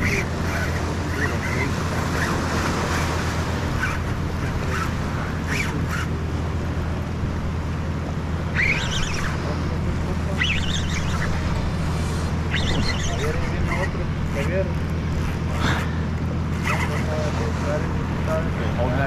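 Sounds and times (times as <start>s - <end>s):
surf washing: 0.0s - 19.0s
short high calls: 8.5s - 9.4s, 12.4s - 13.2s.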